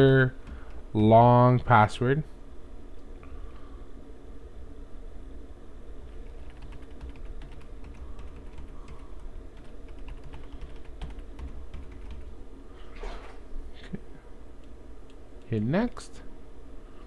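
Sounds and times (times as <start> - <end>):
steady low hum: 0.0 - 17.0
typing on computer keyboard: 6.1 - 12.3.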